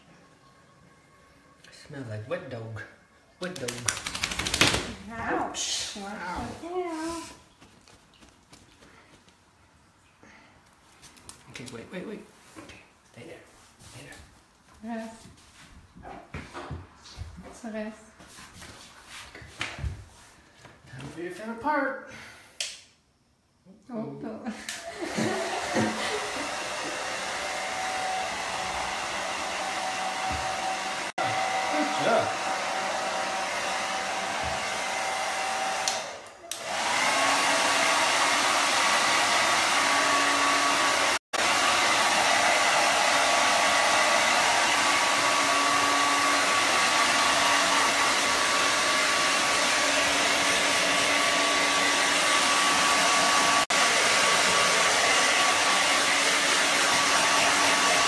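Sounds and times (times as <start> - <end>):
hair dryer blowing: 24.6 - 58.0.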